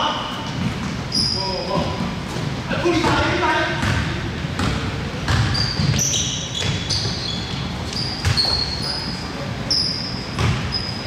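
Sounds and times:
sneakers squeaking: 0.1s - 11.0s
basketball thudding on floor: 3.8s - 6.0s.

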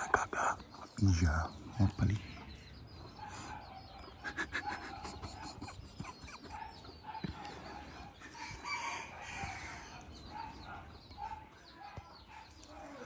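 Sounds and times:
chickens clucking: 0.0s - 13.0s
rooster crowing: 8.3s - 10.0s.

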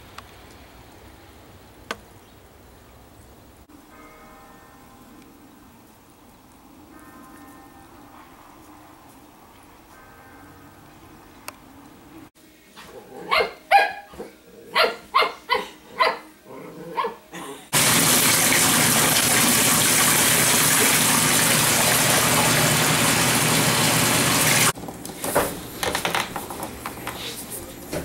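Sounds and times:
dog barking: 13.1s - 16.3s, 16.9s - 17.2s
water running into bathtub: 17.7s - 24.8s.

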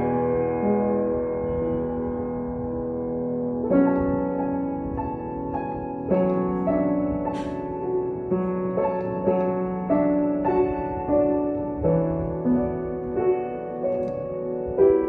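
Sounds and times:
upright piano playing slowly: 0.0s - 15.0s.

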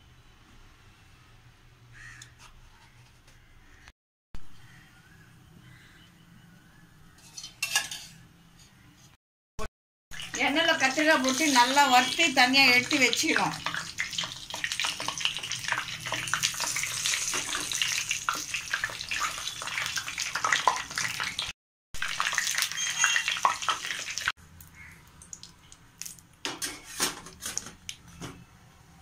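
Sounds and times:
eggplants sizzling in hot oil: 10.2s - 25.4s.

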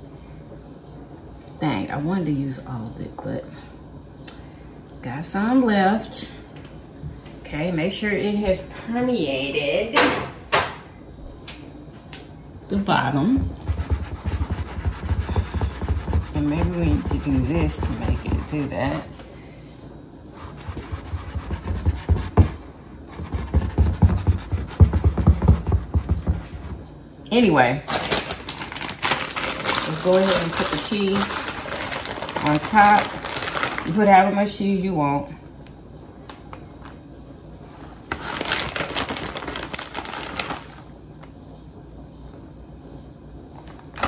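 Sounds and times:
plastic bag crinkling: 27.9s - 34.0s, 38.1s - 40.9s.

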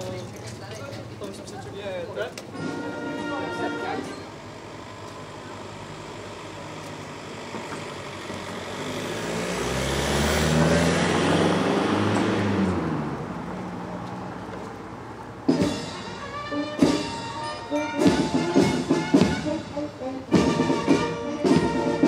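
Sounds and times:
vehicle driving past: 4.5s - 15.6s.

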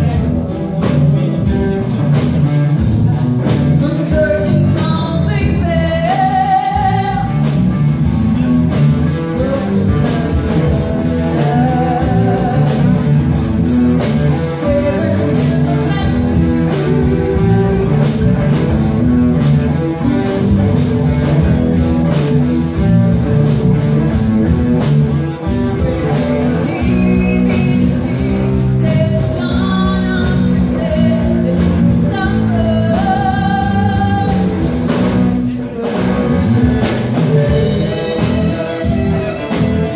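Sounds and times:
rock band playing: 0.0s - 39.9s
woman singing: 3.5s - 7.6s, 9.2s - 13.3s, 14.2s - 18.6s, 26.0s - 39.9s.

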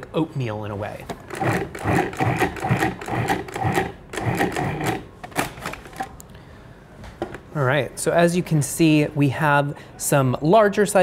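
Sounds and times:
food processor pulsing: 1.3s - 5.1s.

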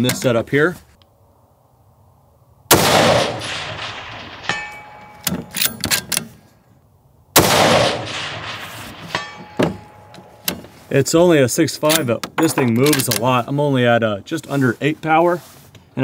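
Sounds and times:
rifle shots echoing: 2.7s - 5.8s, 7.4s - 10.4s
bullet ringing on steel target: 3.4s - 5.5s, 7.9s - 10.4s
rifle bolt clicking: 5.1s - 6.3s, 11.9s - 13.2s.

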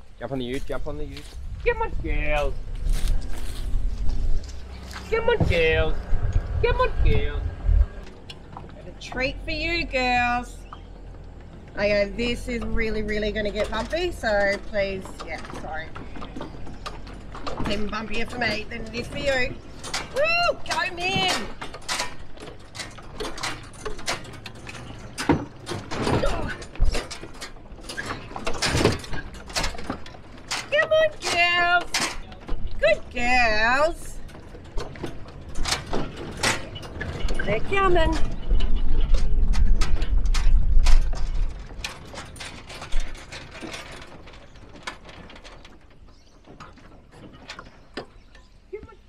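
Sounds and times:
low vehicle rumble: 0.0s - 49.0s
truck load rattling and knocking: 0.0s - 49.0s
heavy thump: 5.1s - 6.3s.

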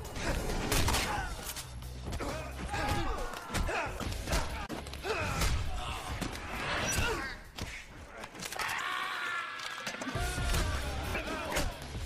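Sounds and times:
film music: 0.0s - 12.0s
punches and thuds: 2.0s - 7.8s.

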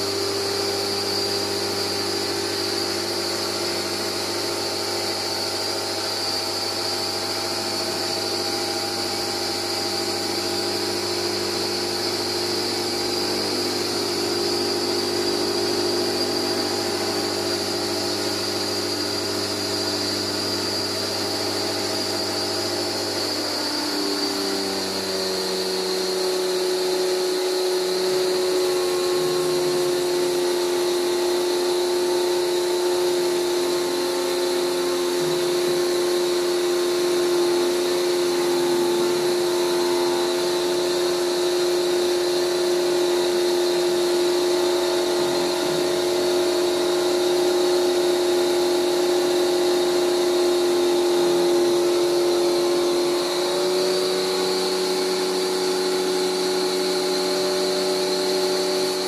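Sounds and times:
pressure washer running: 0.0s - 59.0s.

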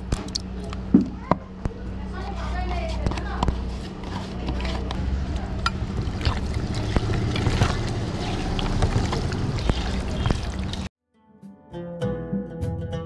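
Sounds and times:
steady low rumble: 4.8s - 10.9s
hand squishing meat in a pot: 5.5s - 10.9s
music: 11.0s - 13.0s.

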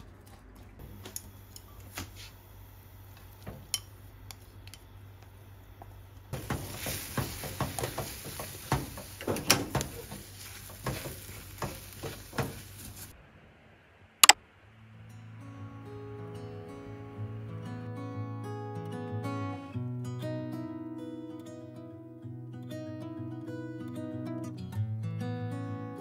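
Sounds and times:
light hiss: 0.8s - 15.3s
chopsticks scraping frying pan: 6.4s - 13.1s.

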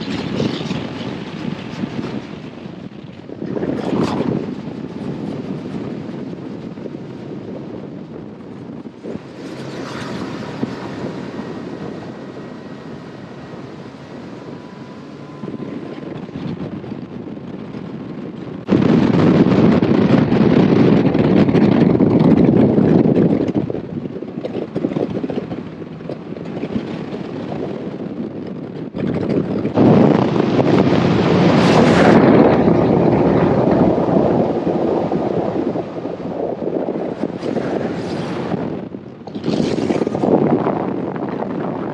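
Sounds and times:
outboard motor drone: 0.0s - 41.9s
wind on microphone: 0.0s - 41.9s.

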